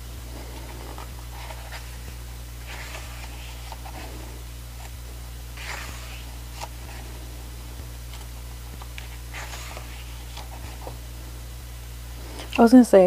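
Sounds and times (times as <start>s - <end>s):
low hum: 0.0s - 13.0s
pages turning: 0.5s - 5.0s, 5.6s - 7.1s, 8.0s - 11.0s.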